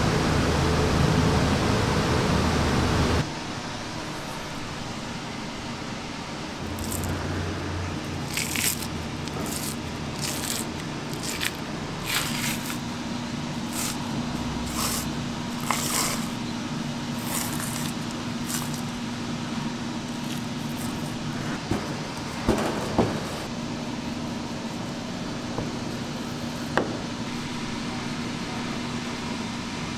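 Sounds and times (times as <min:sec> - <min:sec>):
kitchen hum: 0:03.2 - 0:29.1
wet squishing and tearing of meat: 0:08.2 - 0:12.8, 0:17.2 - 0:19.0.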